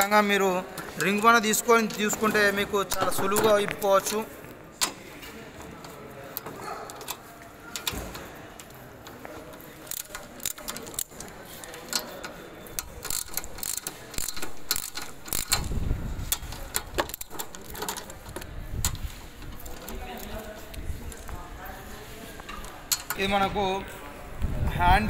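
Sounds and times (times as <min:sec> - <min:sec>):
spanner clicking on metal nuts: 0:09.9 - 0:20.0.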